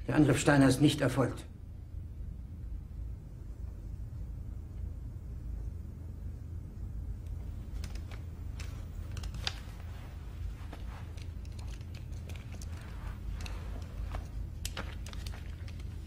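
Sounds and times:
low room hum: 0:00.0 - 0:16.0
soft clicks and rustles: 0:07.1 - 0:16.0.

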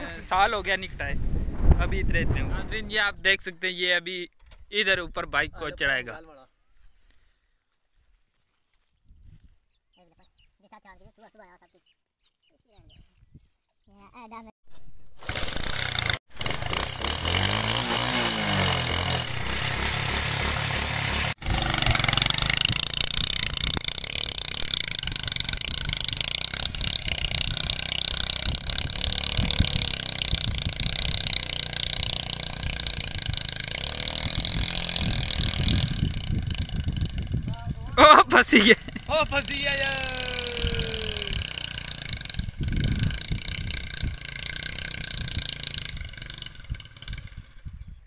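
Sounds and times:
motorcycle engine revving: 0:15.2 - 0:38.0, 0:38.6 - 0:47.8.

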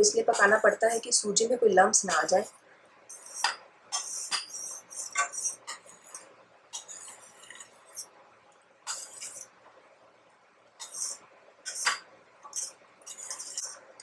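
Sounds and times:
metal spoon scraping saucepan: 0:00.0 - 0:01.2, 0:02.0 - 0:02.5, 0:03.1 - 0:08.1, 0:08.9 - 0:09.5, 0:10.8 - 0:13.9.

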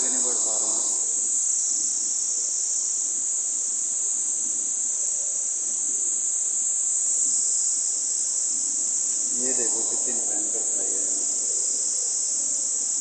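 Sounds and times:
shrill insect chorus: 0:00.0 - 0:13.0.

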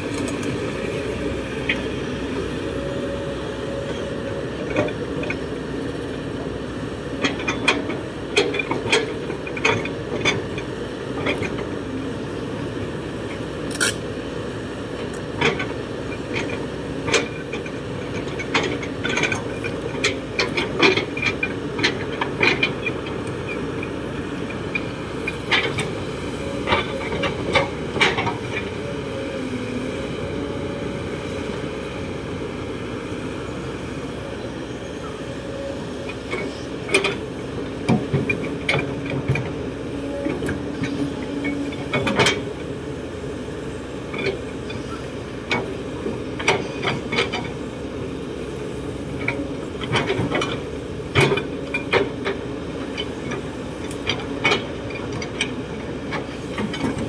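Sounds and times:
excavator engine running: 0:00.0 - 0:57.0.

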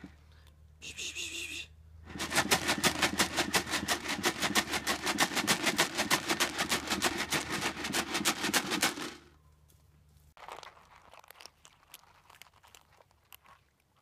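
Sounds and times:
dry cat food rattling in container: 0:02.1 - 0:09.3, 0:10.4 - 0:13.8.

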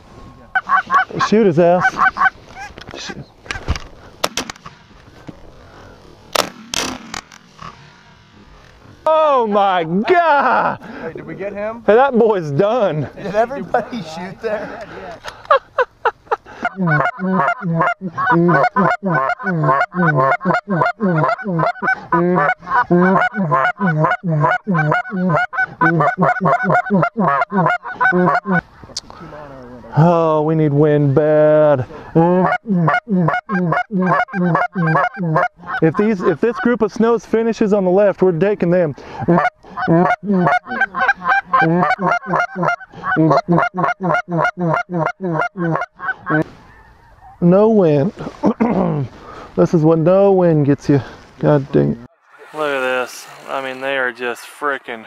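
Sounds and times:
goose honking: 0:00.5 - 0:02.7, 0:16.5 - 0:28.6, 0:32.4 - 0:36.8, 0:39.2 - 0:47.4.

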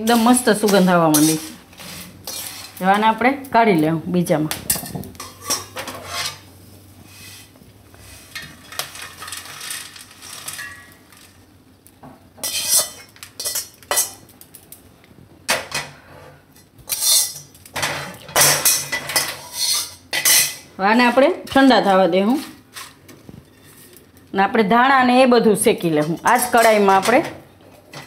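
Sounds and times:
metal utensil scraping on metal: 0:00.0 - 0:03.0, 0:04.7 - 0:06.5, 0:12.4 - 0:14.2, 0:16.2 - 0:24.0, 0:25.9 - 0:27.3.

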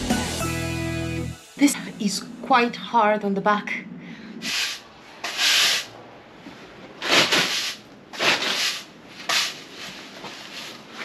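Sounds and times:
push broom sweeping wood chips: 0:04.4 - 0:05.9, 0:07.0 - 0:11.0.

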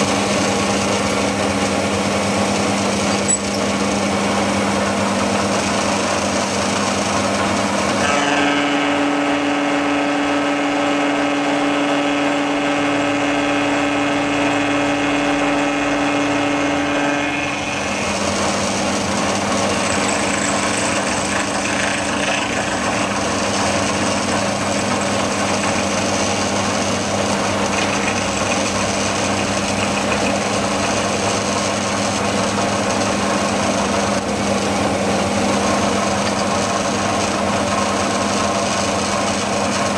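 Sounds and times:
milling machine whine: 0:00.0 - 0:39.9.

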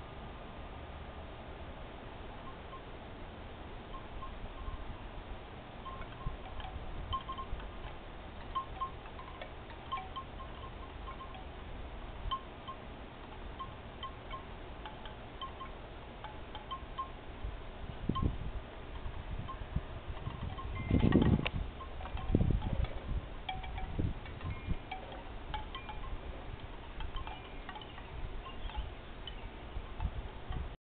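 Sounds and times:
wind noise on microphone: 0:02.3 - 0:30.8
tinkling chimes: 0:05.8 - 0:07.8, 0:08.5 - 0:11.6, 0:19.0 - 0:30.7.

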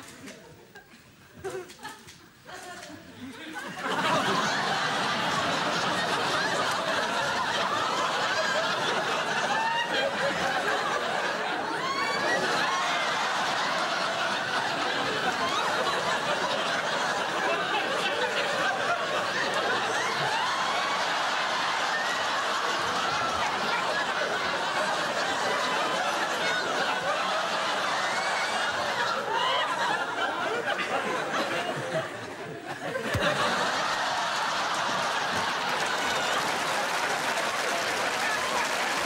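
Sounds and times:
audience laughing: 0:00.0 - 0:39.0.

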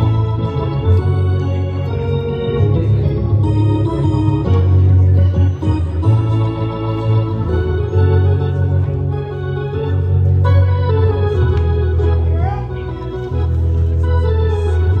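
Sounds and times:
organ chords on keyboard: 0:00.0 - 0:15.0.

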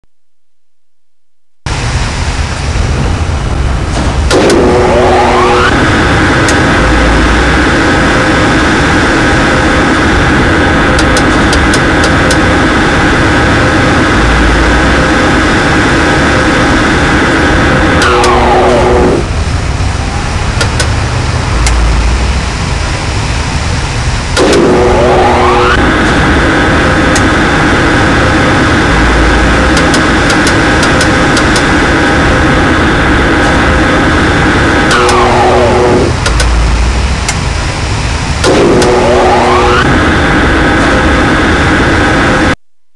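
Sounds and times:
motor whine rising: 0:04.0 - 0:19.4, 0:20.2 - 0:42.6
contactor click: 0:10.9 - 0:12.4, 0:20.6 - 0:21.0, 0:24.3 - 0:25.0, 0:29.4 - 0:31.8, 0:34.8 - 0:36.6
sharp clicks: 0:20.6 - 0:21.0, 0:29.7 - 0:31.7, 0:36.2 - 0:36.6
electric motor whining: 0:34.6 - 0:37.4, 0:38.4 - 0:40.0.

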